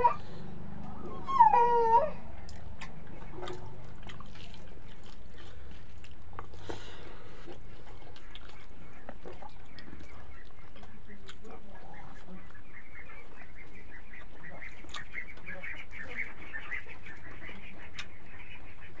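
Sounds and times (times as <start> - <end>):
low hum: 0.0 - 19.0
wet eating mouth smacks: 2.5 - 8.6.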